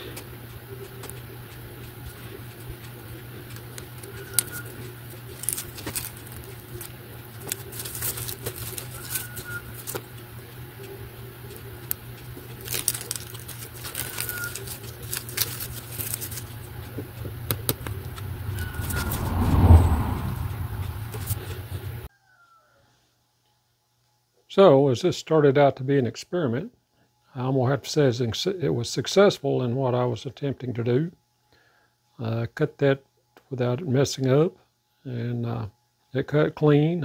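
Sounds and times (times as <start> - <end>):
steady low hum: 0.0 - 22.1
plastic film crinkling: 4.3 - 10.2, 11.8 - 17.1.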